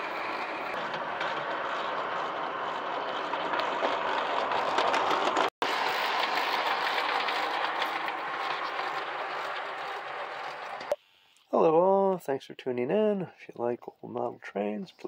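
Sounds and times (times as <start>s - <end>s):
model train motor whirring: 0.0s - 10.9s.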